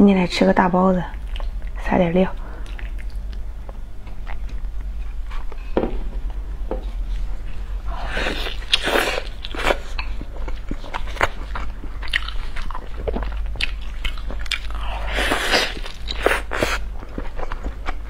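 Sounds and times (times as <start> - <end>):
low hum: 0.0 - 18.0
wet chewing and smacking: 1.1 - 1.8, 2.6 - 5.5, 8.4 - 18.0.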